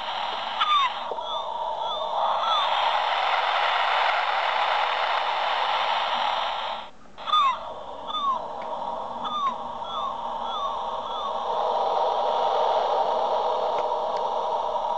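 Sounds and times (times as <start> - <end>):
gull cries: 0.6 - 2.8, 7.2 - 11.6.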